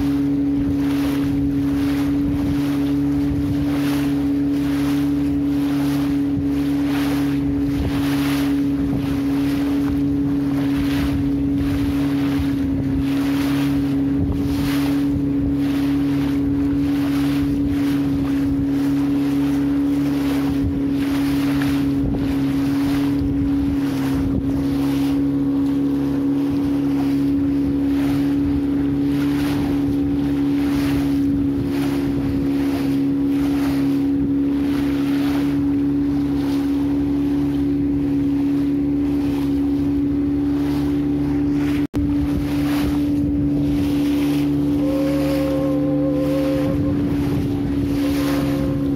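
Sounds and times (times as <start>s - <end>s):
engine droning: 0.0s - 48.9s
wind noise on microphone: 0.0s - 48.9s.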